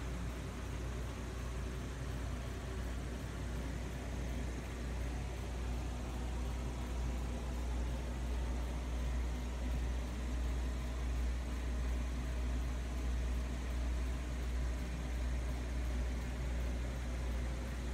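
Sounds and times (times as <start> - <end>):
air pump hum: 0.0 - 17.9.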